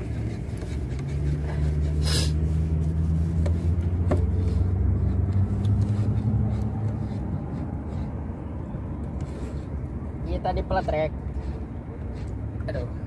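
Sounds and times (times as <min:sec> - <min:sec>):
spoon stirring paper cup: 0:00.0 - 0:09.9
vehicle engine drone: 0:00.0 - 0:13.0.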